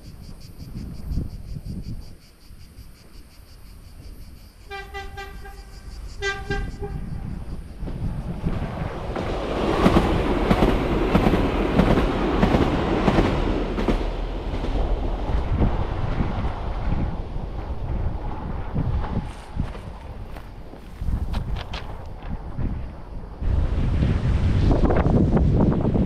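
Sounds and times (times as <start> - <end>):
train wheels rumbling on rails: 4.0 - 26.0
train horn: 4.7 - 7.1.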